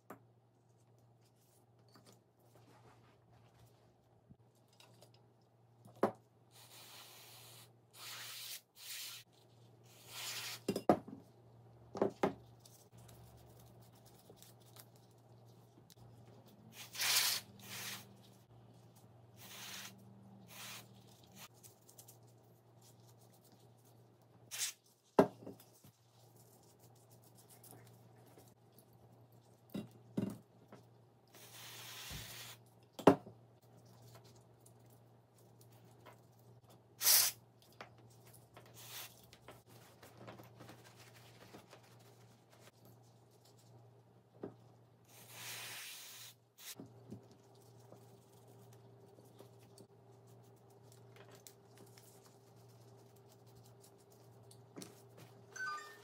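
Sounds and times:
short hiss or rubbing: 16.8s - 18.1s, 19.4s - 20.9s, 31.4s - 32.6s, 37.0s - 37.4s.

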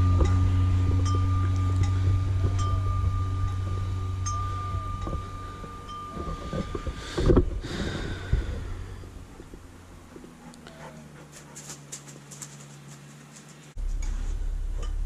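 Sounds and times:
metal wind chime ringing: 0.0s - 7.6s
low hum: 0.0s - 15.0s
dog dashing past: 10.2s - 13.7s.

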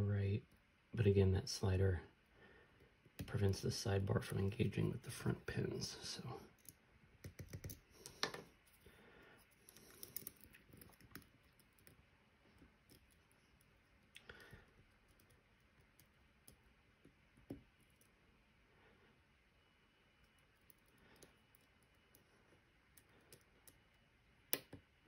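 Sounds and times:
lock pick clicking and scraping: 9.5s - 11.9s.

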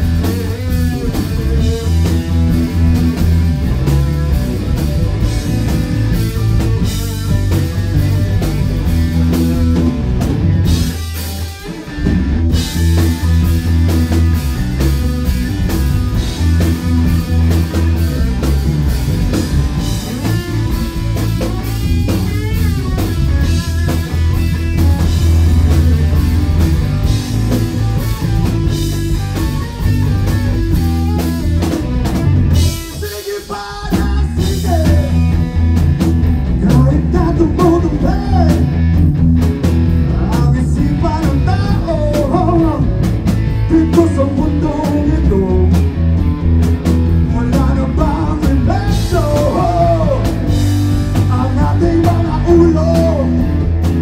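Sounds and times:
bass: 0.0s - 54.0s
distorted electric guitars: 0.0s - 54.0s
drum kit: 0.0s - 54.0s
man singing: 32.7s - 35.4s, 36.5s - 38.8s, 40.0s - 45.9s, 47.2s - 53.7s.

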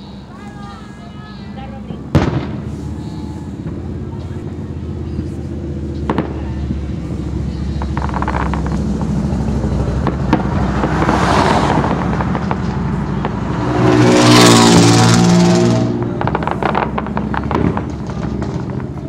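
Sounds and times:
vehicle engine running: 0.0s - 19.0s
distant fireworks bangs: 1.7s - 4.3s, 6.0s - 14.6s, 15.8s - 19.0s.

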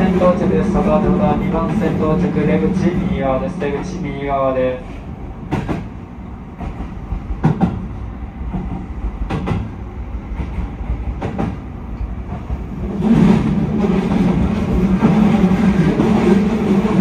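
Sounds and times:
train running rumble: 0.0s - 17.0s.

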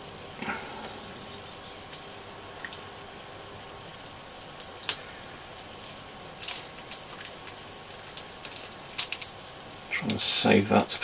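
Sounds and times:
tape peeling crackles: 3.5s - 10.3s.

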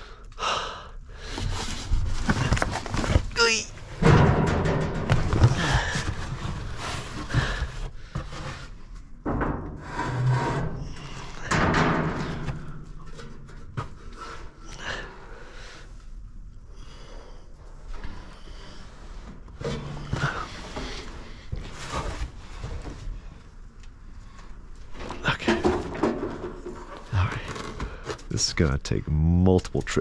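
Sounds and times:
rummaging packages and cardboard: 1.2s - 9.2s, 18.8s - 28.6s.

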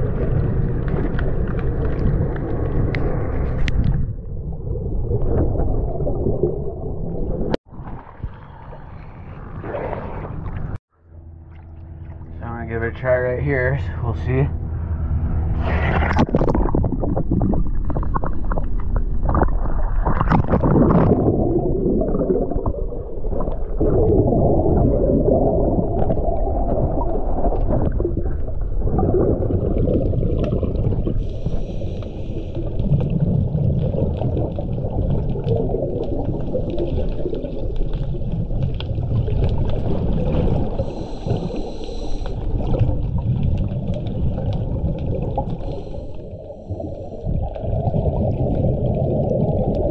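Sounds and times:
underwater bubbles gurgling: 0.0s - 10.8s, 15.7s - 49.9s
water splashing: 0.0s - 10.8s, 14.1s - 49.9s
hissing regulator breaths: 31.2s - 32.6s, 40.8s - 42.5s, 45.6s - 47.2s.

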